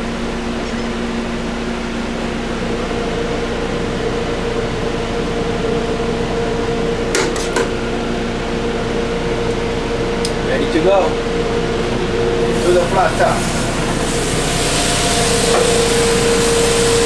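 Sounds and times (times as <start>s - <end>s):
fans and cooling equipment hum: 0.0s - 17.0s.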